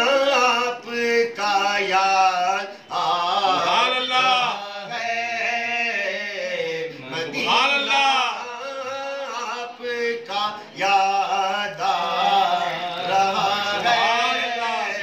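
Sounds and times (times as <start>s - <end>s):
men singing devotional poem: 0.0s - 15.0s.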